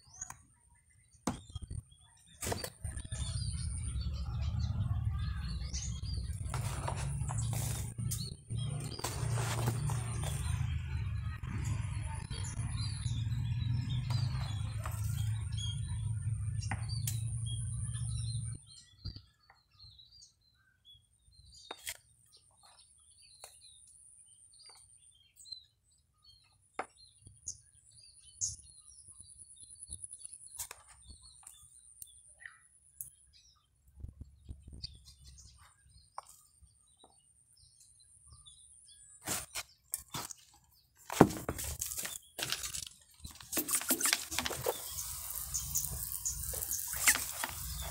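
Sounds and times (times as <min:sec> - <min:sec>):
birds chirping: 0:00.0 - 0:47.9
hands pressing soil and stones: 0:06.4 - 0:10.7, 0:39.2 - 0:47.9.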